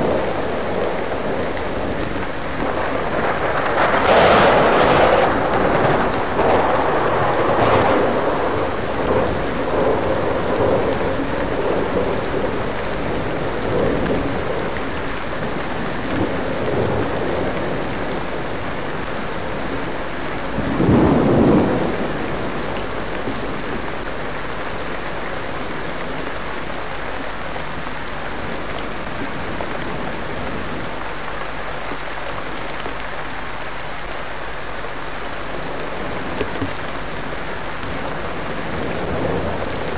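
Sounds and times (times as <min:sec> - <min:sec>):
thunder rumbling: 0:00.0 - 0:19.9, 0:20.5 - 0:24.7, 0:35.6 - 0:39.9
heavy rain falling: 0:00.0 - 0:39.9
loud thunder clap: 0:02.6 - 0:12.2, 0:20.7 - 0:22.1.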